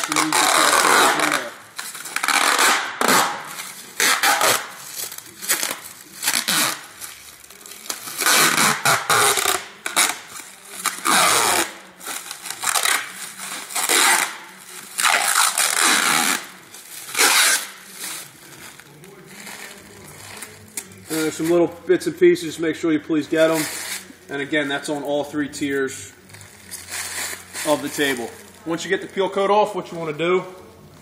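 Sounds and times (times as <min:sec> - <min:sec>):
plastic film crackling and rustling: 0:00.0 - 0:22.3, 0:23.3 - 0:31.0.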